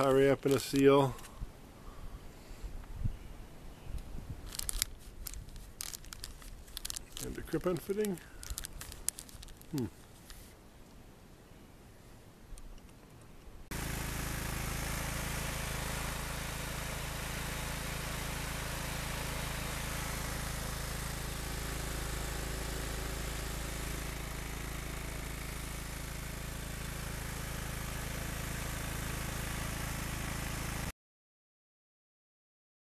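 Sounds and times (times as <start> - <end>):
lawn tractor engine running: 0.0 - 1.2, 4.5 - 9.8, 13.7 - 30.9.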